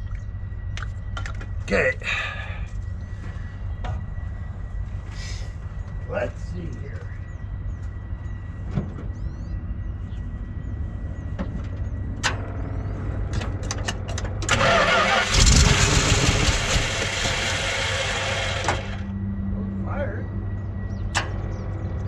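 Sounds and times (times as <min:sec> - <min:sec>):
engine cranking and coughing: 0:13.2 - 0:19.1.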